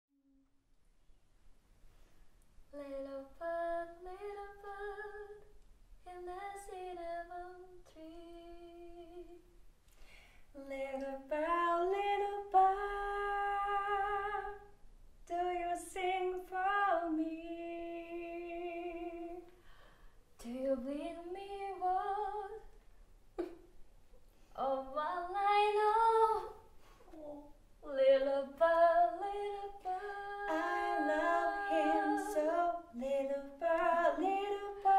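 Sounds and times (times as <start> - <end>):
woman singing a cappella: 2.7 - 9.4, 10.6 - 14.7, 15.3 - 19.5, 20.4 - 22.7, 24.5 - 34.9.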